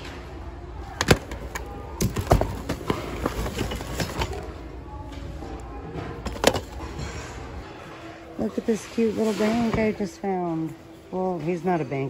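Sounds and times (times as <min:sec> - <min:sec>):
low store hum: 0:00.0 - 0:12.0
hands rummaging through items: 0:00.9 - 0:05.2, 0:06.0 - 0:07.3.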